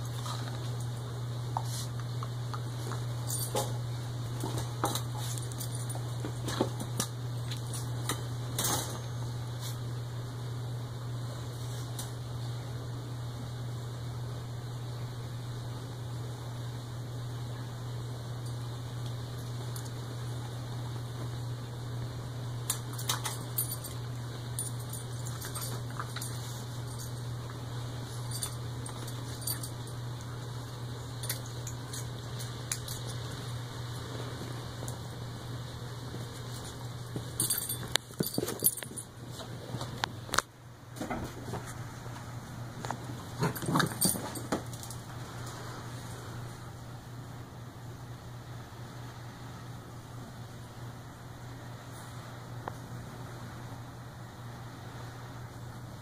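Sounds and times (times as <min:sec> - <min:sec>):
steady low hum: 0:00.0 - 0:56.0
metallic jingles: 0:37.2 - 0:39.1, 0:43.5 - 0:45.0.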